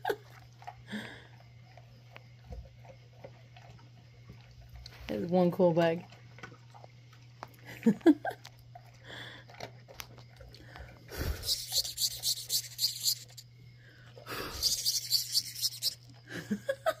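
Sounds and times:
beetle rhythmic rasping: 11.1 - 13.6, 14.3 - 16.2.

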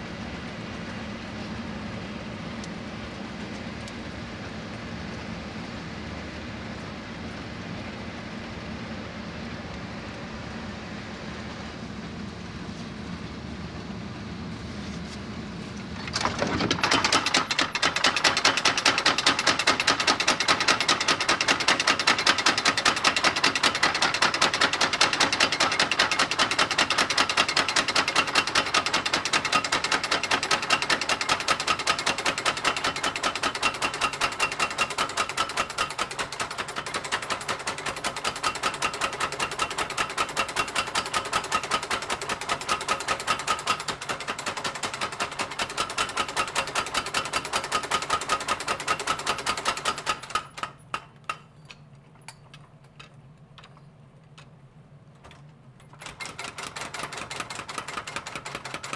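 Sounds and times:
power hammer pounding steel: 16.1 - 51.5, 55.9 - 58.9.

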